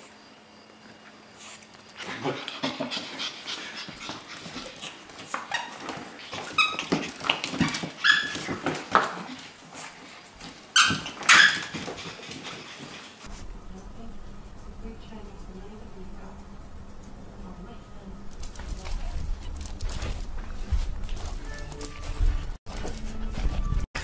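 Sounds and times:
puppy yipping and barking: 7.6 - 8.6, 10.8 - 12.3.

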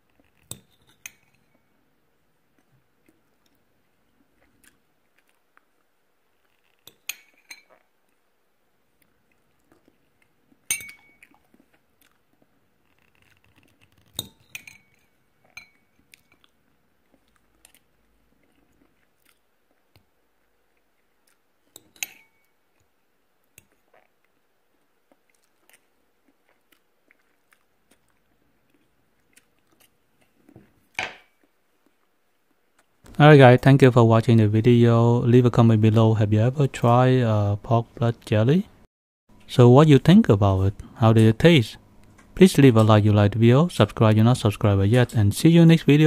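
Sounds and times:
fork clinking on ceramic plate: 10.7 - 11.3, 14.2 - 15.9, 21.8 - 22.5.

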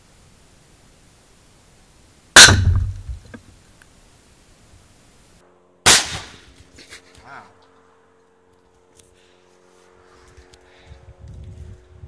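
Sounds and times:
loud explosion: 2.4 - 3.4.

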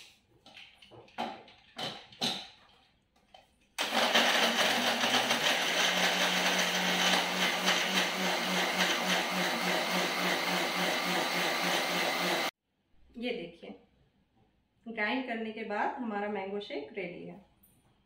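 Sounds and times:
mixer grinder whirring: 3.8 - 12.5.

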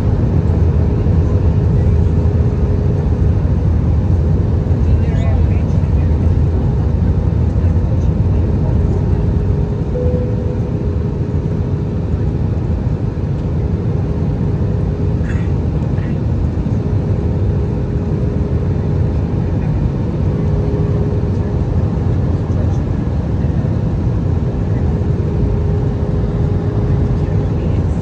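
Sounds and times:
airplane cabin engine and airflow noise: 0.0 - 28.0
thin steady hum: 9.0 - 15.1.

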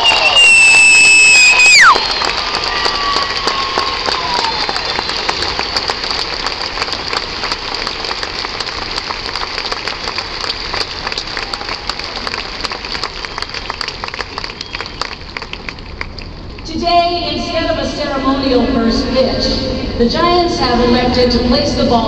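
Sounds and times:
stadium crowd applauding: 0.0 - 16.6.

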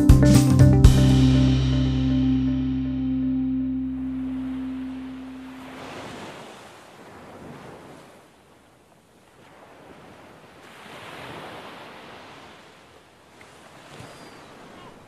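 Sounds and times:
ocean waves washing in: 3.2 - 15.0
wind: 3.4 - 15.0.

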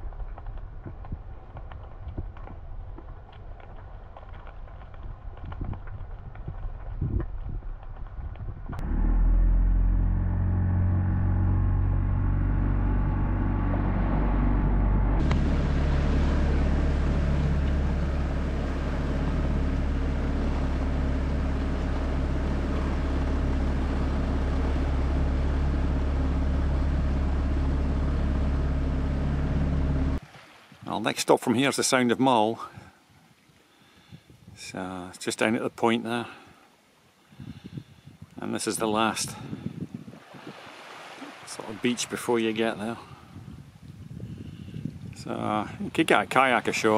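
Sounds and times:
outboard motor drone: 8.7 - 30.2, 40.2 - 42.9.

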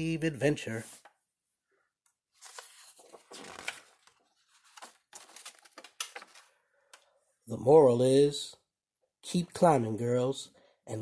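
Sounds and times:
paper page turning: 2.3 - 7.0.

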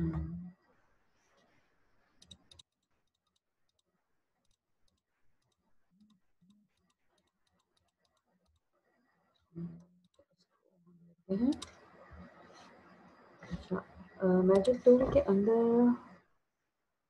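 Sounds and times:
computer mouse clicks: 2.2 - 8.6, 11.4 - 12.4, 14.5 - 15.2.

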